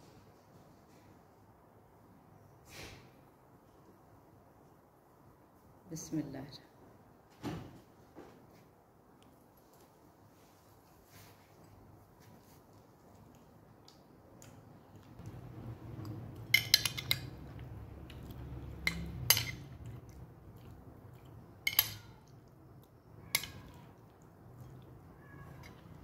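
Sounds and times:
metal spoon clinking on dishes: 0:16.4 - 0:20.2, 0:21.6 - 0:22.4, 0:23.3 - 0:23.9.

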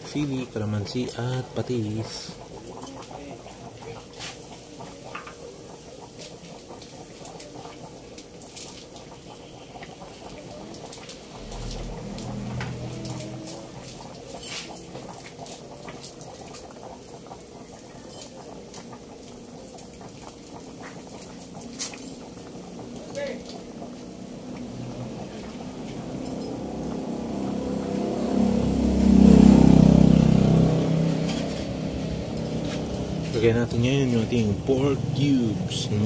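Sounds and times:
broth boiling in metal pot: 0:00.0 - 0:36.0
low rumble: 0:11.3 - 0:14.4.

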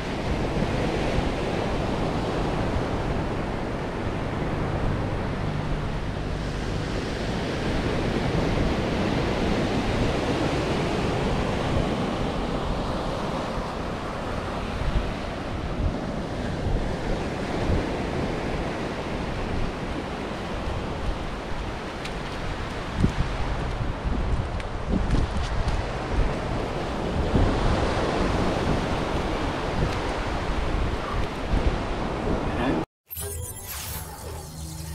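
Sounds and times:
ocean surf breaking on beach: 0:00.0 - 0:23.6
wind buffeting microphone: 0:00.0 - 0:32.6.

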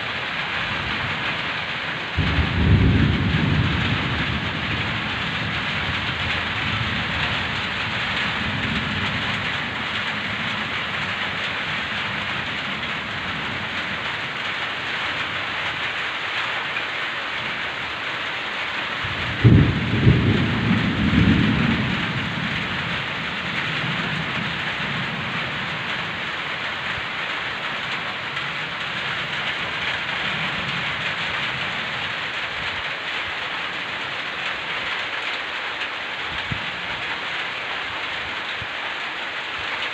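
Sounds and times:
low thunder rumbling: 0:00.0 - 0:16.0, 0:19.0 - 0:34.9, 0:36.3 - 0:37.2
heavy rain hissing: 0:00.0 - 0:39.9
thunderclap: 0:00.7 - 0:11.3, 0:19.0 - 0:26.2.

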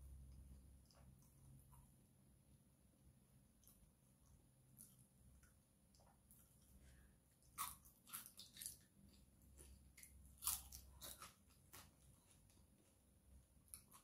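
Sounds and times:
person chewing crunchy food: 0:04.7 - 0:14.0.

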